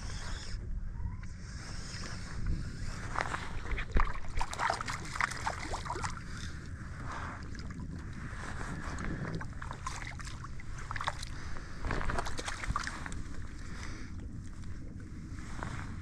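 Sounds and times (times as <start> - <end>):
wind on microphone: 0.0 - 16.0
water splashing around fish: 3.4 - 6.5, 7.2 - 14.7.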